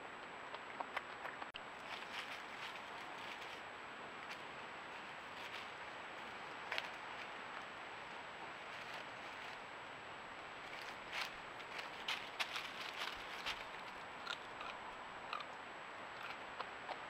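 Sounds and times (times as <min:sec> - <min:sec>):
rustling in dry leaves: 0:01.7 - 0:09.7, 0:10.5 - 0:14.3.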